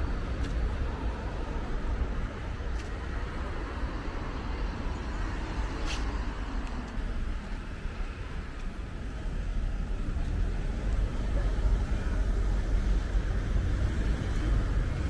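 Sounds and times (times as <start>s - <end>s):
cars passing: 0.0s - 15.0s
low traffic rumble: 0.0s - 15.0s.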